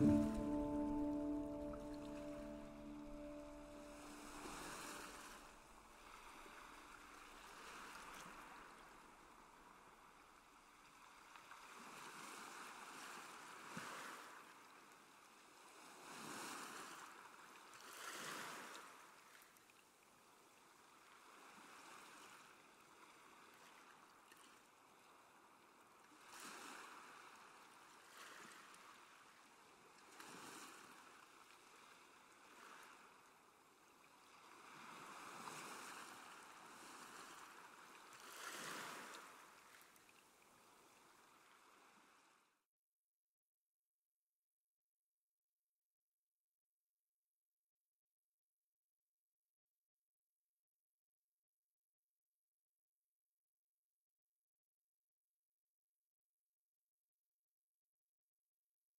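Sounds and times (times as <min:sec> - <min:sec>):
faint sea waves washing: 0:00.0 - 0:09.9.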